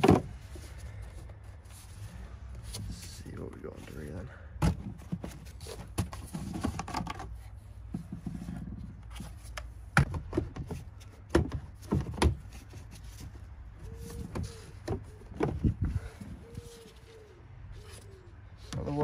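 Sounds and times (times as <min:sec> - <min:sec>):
plastic clacks and knocks: 0:04.6 - 0:12.6.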